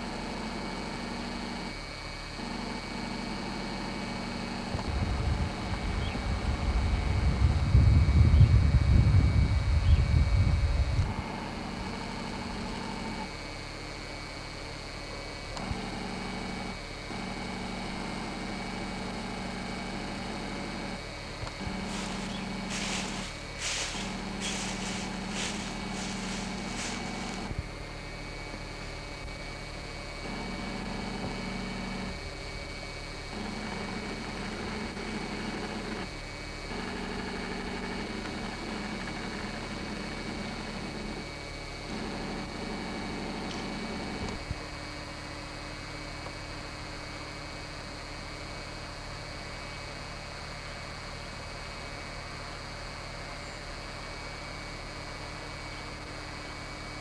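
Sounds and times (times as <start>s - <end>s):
mechanical hum with hiss: 0.0s - 57.0s
faint steady tones: 16.4s - 27.6s
low hum: 20.2s - 27.9s
low droning: 21.0s - 27.8s
steady hiss: 21.5s - 27.8s.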